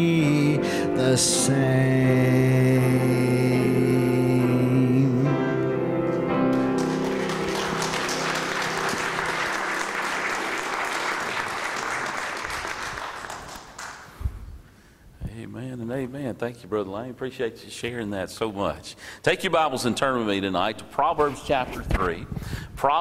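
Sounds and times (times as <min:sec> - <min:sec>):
man singing: 0:00.0 - 0:05.9
piano: 0:00.0 - 0:14.3
congregation applauding: 0:06.4 - 0:14.2.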